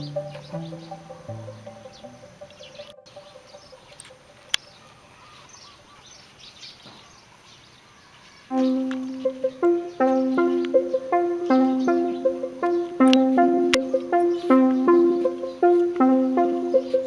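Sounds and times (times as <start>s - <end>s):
background music: 0.0s - 4.5s, 8.5s - 17.0s
small birds chirping: 0.0s - 17.0s
sharp click: 13.0s - 13.9s.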